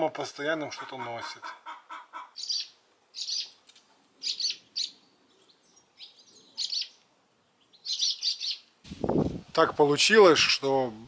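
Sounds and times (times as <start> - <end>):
swallows chirping: 2.3 - 3.6, 4.2 - 8.7.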